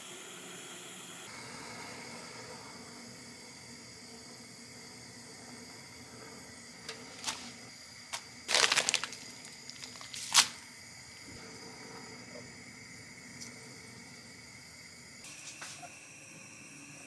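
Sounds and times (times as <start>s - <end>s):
simmering pot hiss: 0.0s - 17.0s
crackly rustle: 6.9s - 10.6s.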